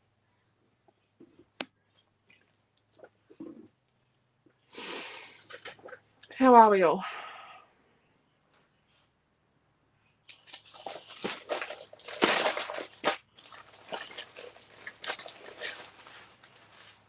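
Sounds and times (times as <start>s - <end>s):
plastic bag crinkling: 10.3s - 17.0s.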